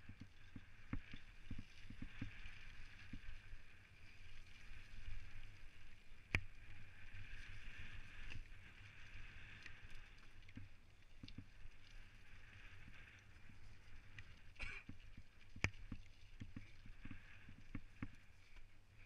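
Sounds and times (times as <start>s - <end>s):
mountain bike tyre and drivetrain noise: 0.0s - 19.0s.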